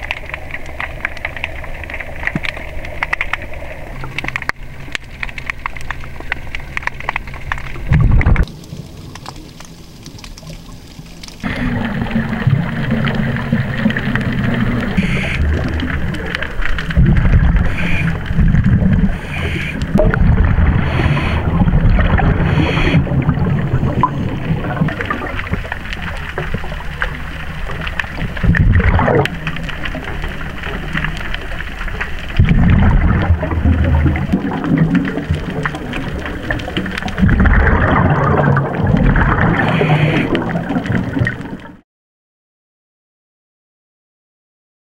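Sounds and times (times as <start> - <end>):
underwater bubbling rumble: 0.0 - 41.8
diver breathing through regulator: 15.0 - 15.8, 17.4 - 20.0, 20.6 - 23.4, 39.4 - 40.7.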